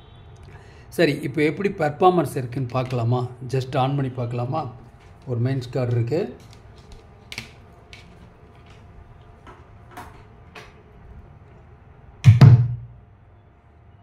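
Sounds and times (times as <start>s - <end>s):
amplifier power-on thump: 12.2s - 13.0s.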